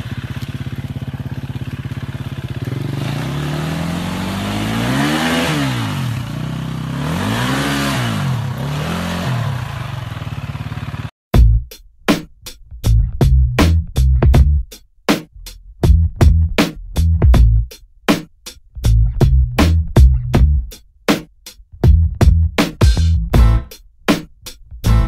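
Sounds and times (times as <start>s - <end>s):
dirt bike engine revving: 0.0s - 11.1s
electronic music with a beat: 11.4s - 25.0s.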